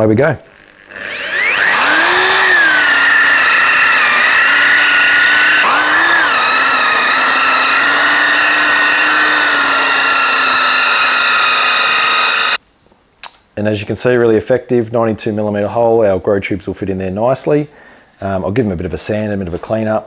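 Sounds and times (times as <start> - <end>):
drill hole saw cutting wood: 0.5 - 12.6.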